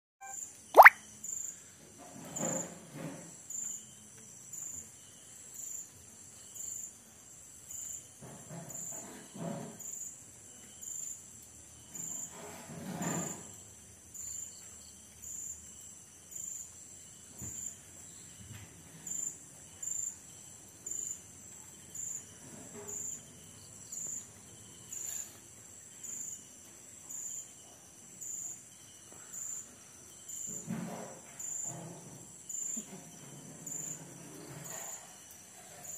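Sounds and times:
sharp insect pulse: 0:00.8 - 0:01.0
night insects trilling: 0:03.5 - 0:08.9, 0:13.3 - 0:35.9.

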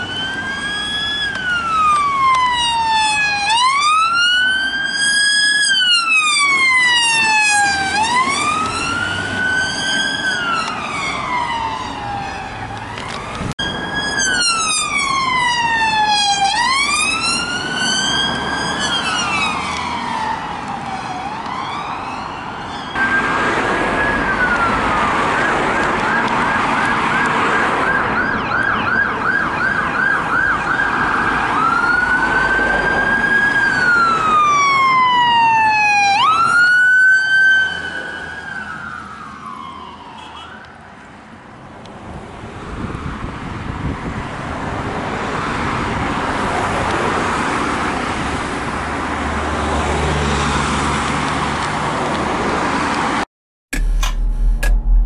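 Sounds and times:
siren yelp: 0:00.0 - 0:40.8
two-tone siren wail: 0:00.0 - 0:41.0.

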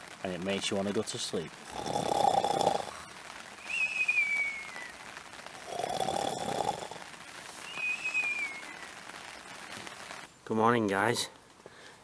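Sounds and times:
person snoring raspily: 0:01.7 - 0:03.0, 0:05.6 - 0:07.0
falling whistle: 0:03.6 - 0:05.0, 0:07.6 - 0:09.0.

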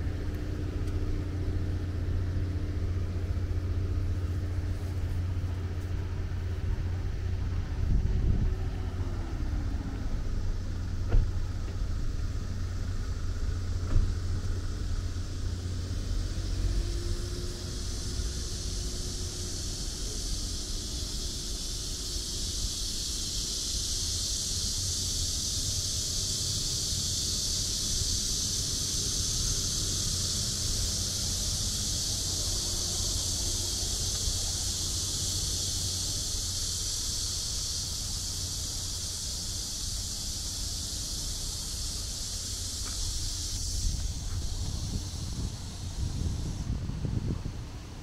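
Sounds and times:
cicadas droning: 0:00.0 - 0:48.0
wind rumble on microphone: 0:04.3 - 0:37.8, 0:40.5 - 0:48.0.

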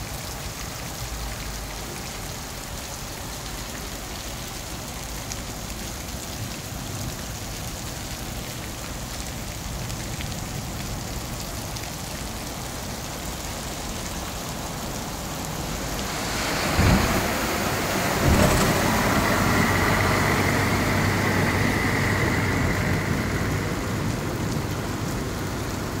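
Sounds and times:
heavy rain on street: 0:00.0 - 0:26.0.

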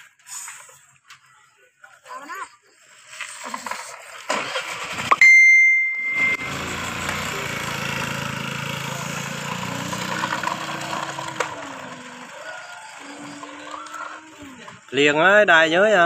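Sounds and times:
bell-like ding: 0:05.2 - 0:06.6.

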